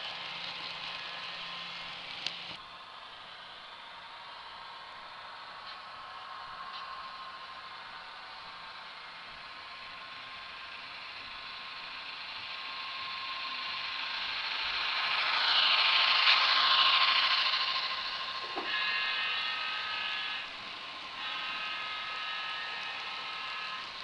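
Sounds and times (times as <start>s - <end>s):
model train wheels clicking and rattling: 0.0s - 24.0s.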